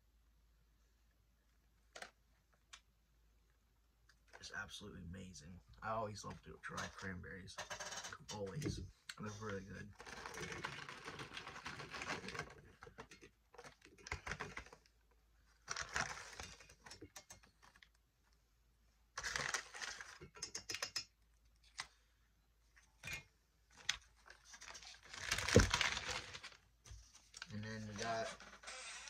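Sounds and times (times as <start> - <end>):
packaging rustling and clicking: 10.0 - 14.9, 15.6 - 18.0, 19.2 - 20.8, 23.1 - 28.3.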